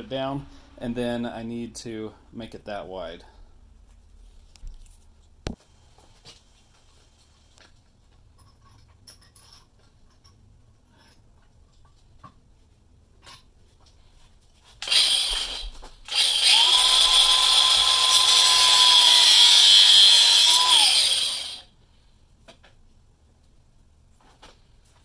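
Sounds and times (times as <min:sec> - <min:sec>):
angle grinder cutting plastic: 0:14.8 - 0:21.7.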